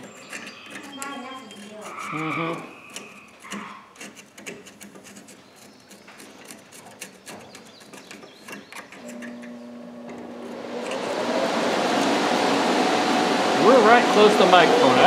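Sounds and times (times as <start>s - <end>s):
motor hum: 9.0s - 15.0s.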